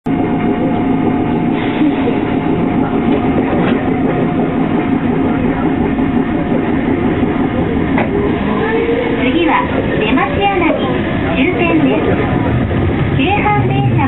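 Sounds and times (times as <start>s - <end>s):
train running rumble: 0.0s - 14.0s.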